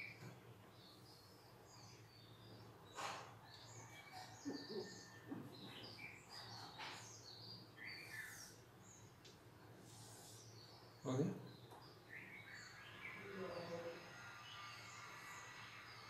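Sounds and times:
small birds chirping: 0.0 - 16.0.

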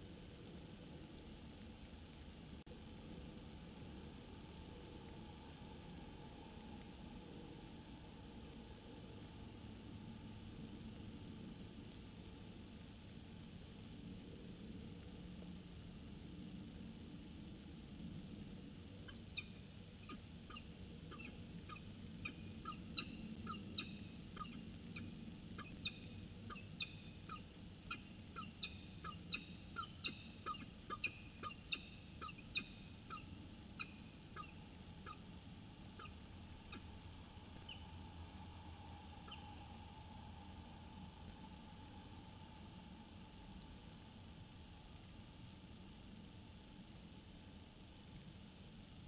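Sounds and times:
falcon calling: 19.1 - 25.0, 25.6 - 35.2.

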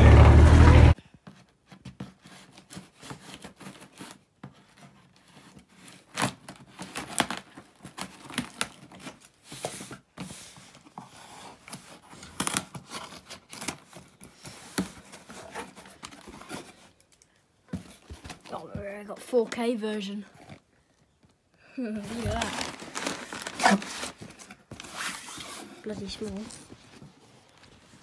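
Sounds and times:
cardboard scraping: 1.7 - 17.0, 22.0 - 28.0
packing tape slit and torn: 5.8 - 9.2, 12.1 - 14.9.

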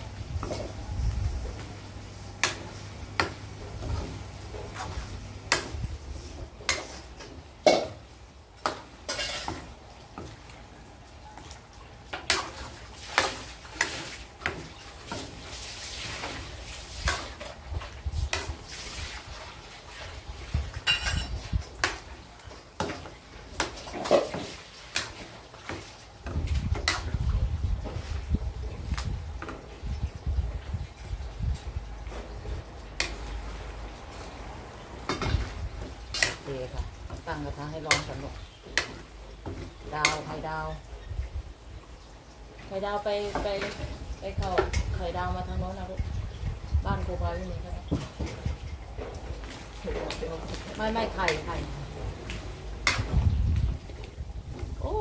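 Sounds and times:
light sizzle of fat: 0.0 - 55.0
metal utensils scraping a wok: 2.4 - 8.0, 8.7 - 9.7, 35.0 - 40.5, 52.8 - 53.2.

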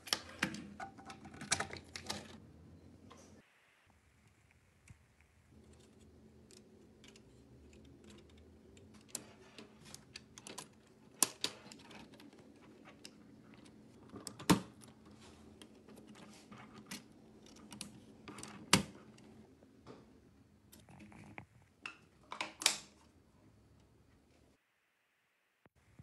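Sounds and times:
plastic parts clicking and tapping: 0.0 - 2.4, 5.6 - 19.3.

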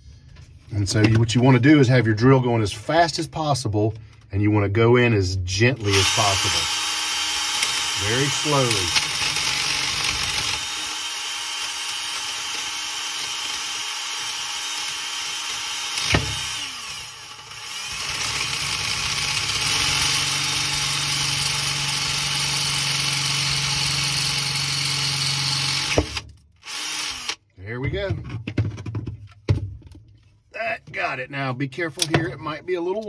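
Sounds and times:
cordless drill whining: 5.8 - 27.5.

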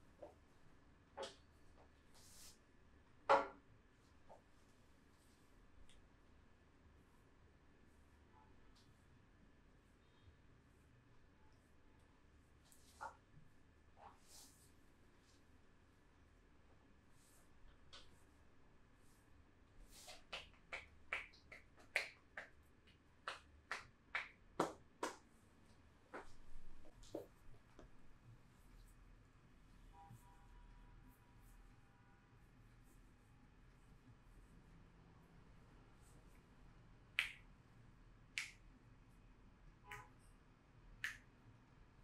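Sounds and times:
hands slapping on back: 20.0 - 25.2, 37.2 - 37.4.

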